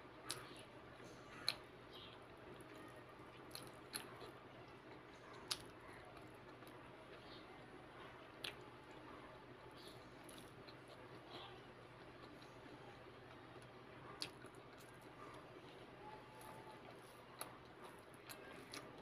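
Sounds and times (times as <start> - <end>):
person chewing: 2.5 - 7.3, 8.3 - 9.0, 9.8 - 19.0.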